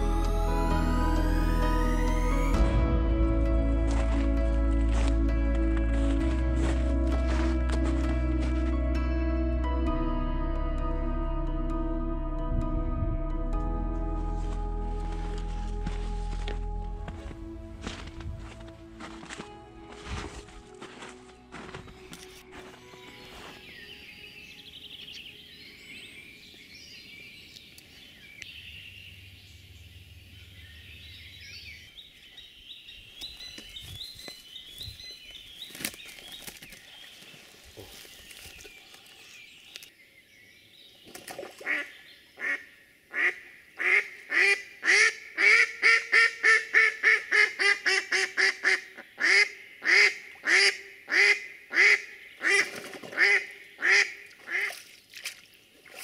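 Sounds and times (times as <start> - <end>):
small birds singing: 23.0 - 44.4.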